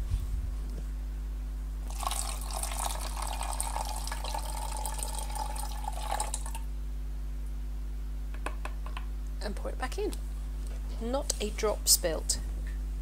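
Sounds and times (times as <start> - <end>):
water trickling into plastic bottle: 1.9 - 6.6.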